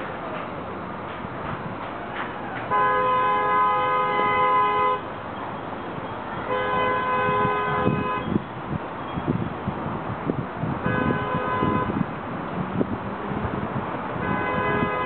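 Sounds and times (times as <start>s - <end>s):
locomotive air horn blasts: 2.7s - 5.1s, 6.4s - 8.4s, 10.8s - 12.0s, 14.2s - 15.0s.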